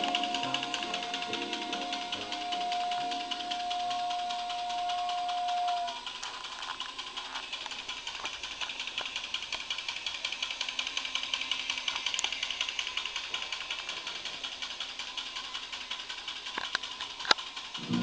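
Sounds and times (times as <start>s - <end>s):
toy train clicking: 0.0s - 18.0s.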